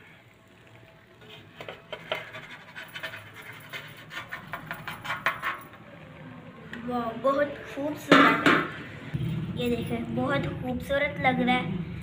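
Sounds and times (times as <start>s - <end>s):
frying pan scraping against a plate: 1.2s - 5.6s.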